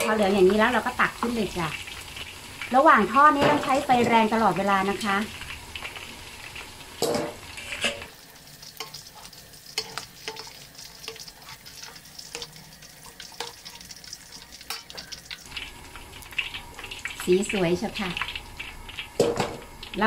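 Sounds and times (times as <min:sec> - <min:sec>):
meat deep-frying in oil: 0:00.0 - 0:20.0
metal skimmer clattering in wok: 0:07.0 - 0:08.1, 0:19.2 - 0:19.6.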